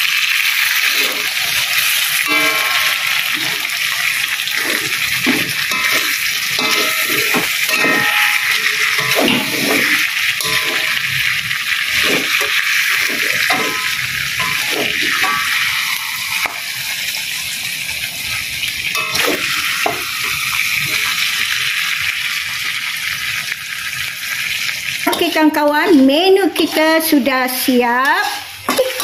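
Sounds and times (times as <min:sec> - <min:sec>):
food sizzling in a wok: 0:00.0 - 0:29.0
spatula scraping and knocking pan: 0:00.9 - 0:16.6, 0:19.0 - 0:20.4.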